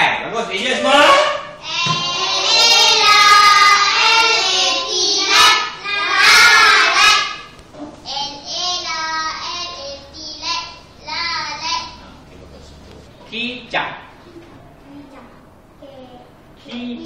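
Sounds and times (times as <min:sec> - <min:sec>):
children chanting in unison: 0:01.6 - 0:07.6.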